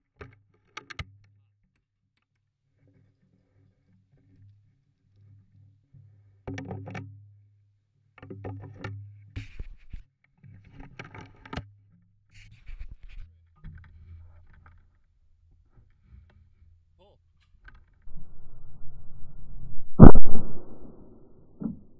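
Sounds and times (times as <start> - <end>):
steady low hum: 18.1 - 21.9.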